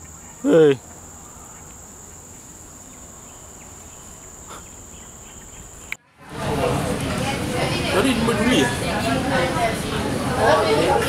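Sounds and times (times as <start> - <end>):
insects droning: 0.0 - 6.0
indoor chatter: 5.8 - 11.0.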